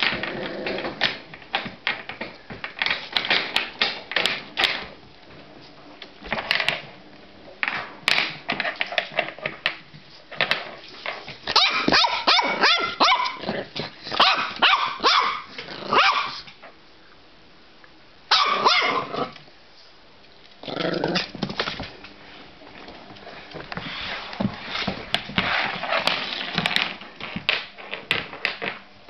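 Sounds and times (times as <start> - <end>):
puppy barking: 11.6 - 13.4, 14.1 - 16.4, 18.3 - 19.3.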